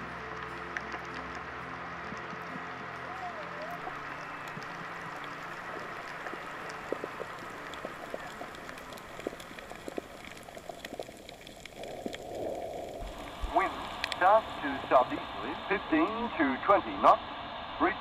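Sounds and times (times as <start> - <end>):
underwater hiss with crackles: 0.0 - 2.9, 3.6 - 17.6
gliding underwater calls: 0.0 - 15.8.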